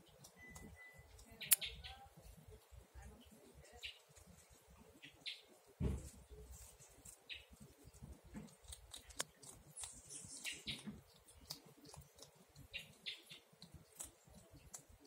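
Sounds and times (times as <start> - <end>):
rustling in dry leaves: 5.6 - 10.5.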